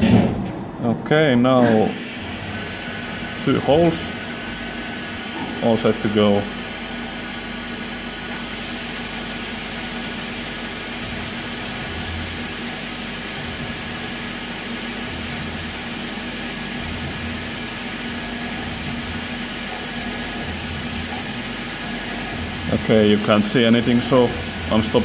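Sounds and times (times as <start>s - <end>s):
machine humming: 0.0s - 25.0s
coolant spray hissing: 8.4s - 25.0s.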